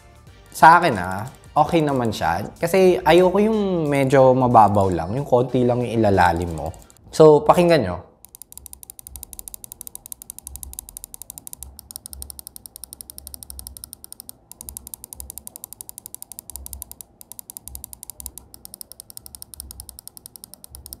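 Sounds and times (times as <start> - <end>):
mouse buttons clicking rapidly: 6.3 - 7.0, 8.2 - 21.0.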